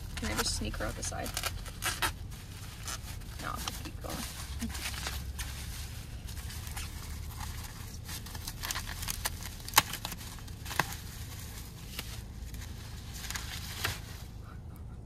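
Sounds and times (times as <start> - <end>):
bubble wrap crinkling: 0.0 - 14.3
bubble wrap snaps: 6.7 - 11.0.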